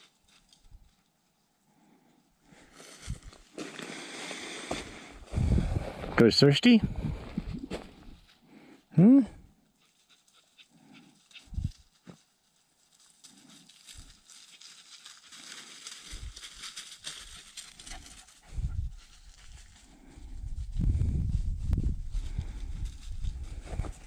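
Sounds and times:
wind buffeting microphone: 5.2 - 6.2, 6.8 - 8.2, 11.5 - 11.8, 18.5 - 24.0
dogs rustling in dry leaves: 9.9 - 20.3.

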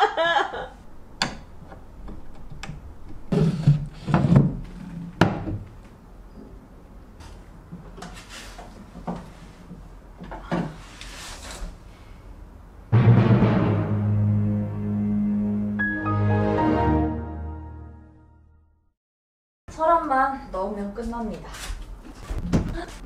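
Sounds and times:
knocks and scrapes of wood: 3.2 - 5.7.

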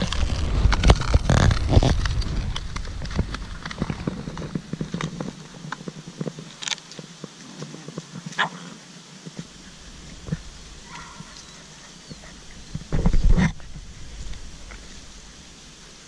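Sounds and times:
loud low rumble: 0.0 - 4.6
puppies yipping and whimpering: 10.9 - 12.9.

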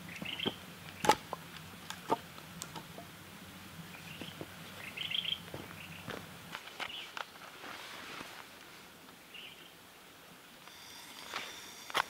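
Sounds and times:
bird chirping: 0.0 - 1.2, 3.8 - 6.1, 9.2 - 9.8.

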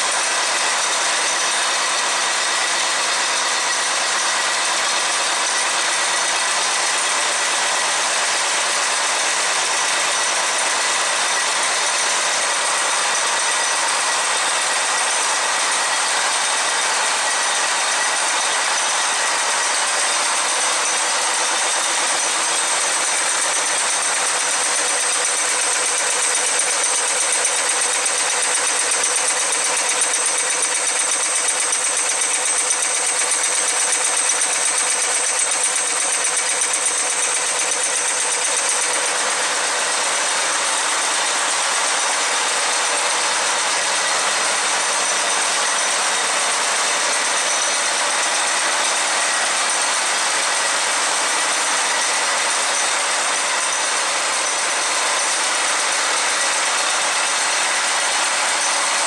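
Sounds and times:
nail machine clattering: 13.0 - 59.0.

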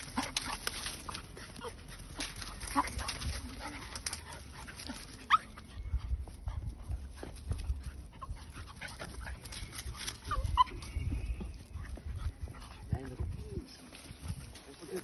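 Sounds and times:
puppies yelping: 0.0 - 5.9, 8.1 - 12.5
puppies scuffling: 0.0 - 15.0.

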